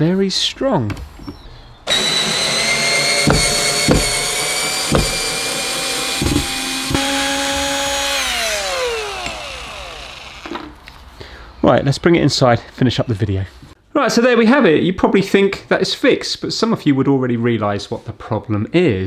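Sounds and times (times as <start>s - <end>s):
cordless drill motor whining: 1.9s - 10.7s.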